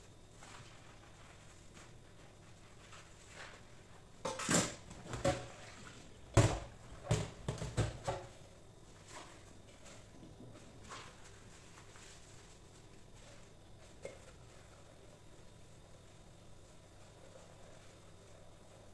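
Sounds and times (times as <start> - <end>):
utensils clattering in metal sink: 4.2 - 5.8
sponge scrubbing: 10.6 - 18.9.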